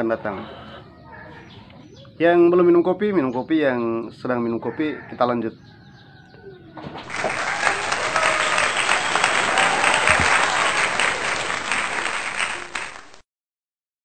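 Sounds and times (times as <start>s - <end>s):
crowd applauding: 7.0s - 13.2s.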